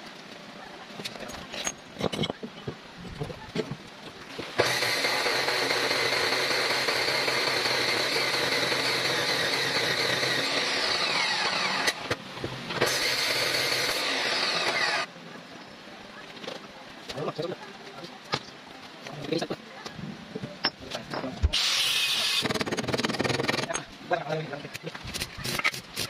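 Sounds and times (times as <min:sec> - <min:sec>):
chop saw cutting steel: 0:04.6 - 0:12.2, 0:12.8 - 0:15.1, 0:21.6 - 0:23.8.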